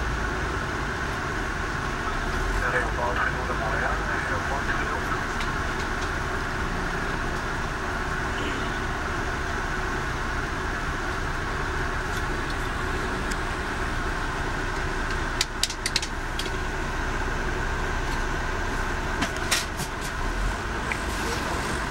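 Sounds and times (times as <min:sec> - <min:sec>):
vehicle running rumble: 0:00.0 - 0:21.9
sharp clicks or rattles: 0:15.1 - 0:16.6.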